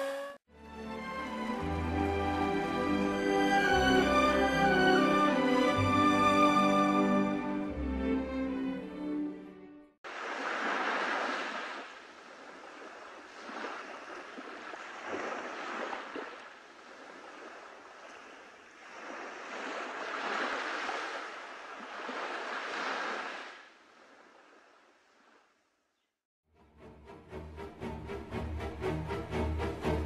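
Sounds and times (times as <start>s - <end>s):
sea waves washing onto shore: 10.1s - 25.2s.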